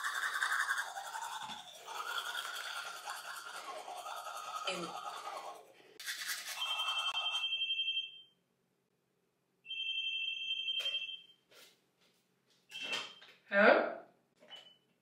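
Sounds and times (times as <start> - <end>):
toothbrush scrubbing: 0.0 - 7.5
phone ringing trilling tone: 6.6 - 8.3, 9.7 - 11.3.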